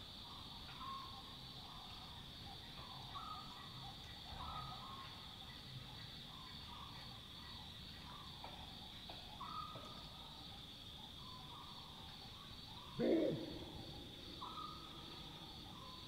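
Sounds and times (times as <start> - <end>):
night insects chorus: 0.0 - 16.0
distant animal calls: 0.3 - 16.0
baboon bark: 13.0 - 13.8.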